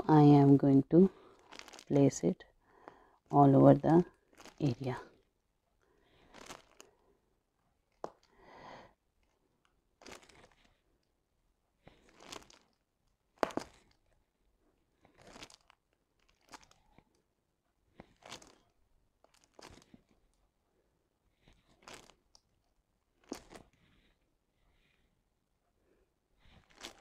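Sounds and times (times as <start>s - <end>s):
plastic film crinkling: 1.4s - 2.2s, 3.8s - 5.0s, 6.2s - 6.9s, 10.0s - 10.7s, 12.0s - 12.8s, 13.4s - 14.0s, 15.2s - 17.0s, 18.0s - 20.2s, 21.6s - 22.4s, 23.2s - 23.8s, 26.5s - 27.0s.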